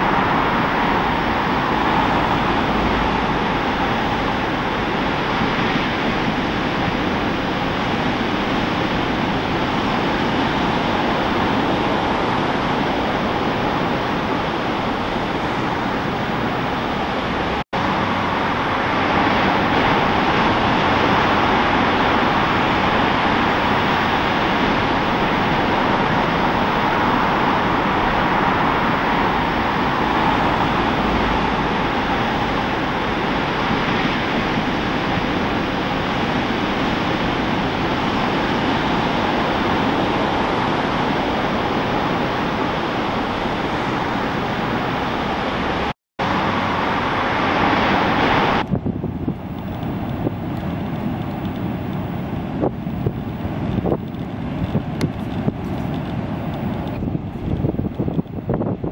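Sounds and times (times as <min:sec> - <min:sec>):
ocean surf breaking: 0:00.0 - 0:58.9.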